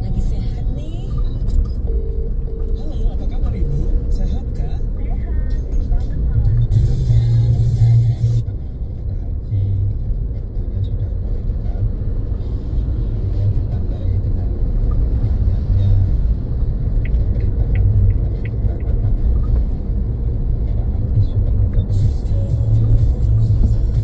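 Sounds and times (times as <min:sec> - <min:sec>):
car driving on road rumble: 0:00.0 - 0:24.0.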